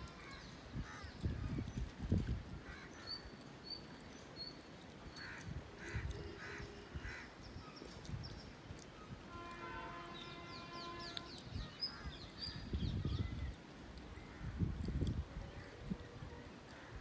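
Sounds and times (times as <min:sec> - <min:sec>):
birds chirping: 0:02.9 - 0:13.6
distant train horn: 0:09.3 - 0:11.5.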